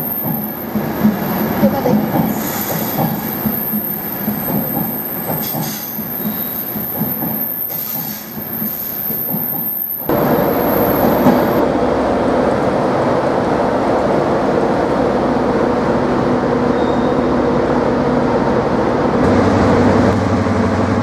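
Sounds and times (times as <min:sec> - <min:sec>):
diesel train engine: 0:00.0 - 0:21.0
train wheels rumbling on rails: 0:00.0 - 0:21.0
faint wheel squeals: 0:16.7 - 0:17.3.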